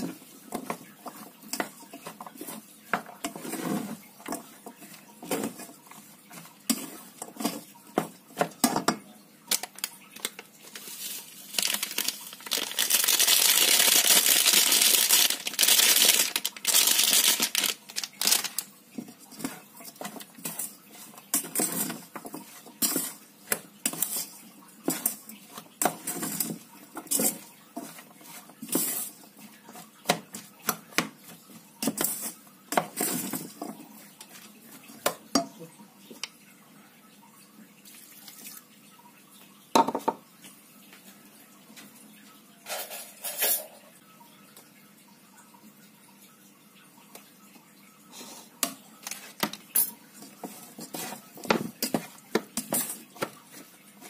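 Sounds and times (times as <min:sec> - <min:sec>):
plastic paddle tapping and scraping pot: 0:00.0 - 0:09.0, 0:11.6 - 0:36.4, 0:50.2 - 0:54.0
seasoning sachet crinkling and shaking: 0:09.5 - 0:18.7.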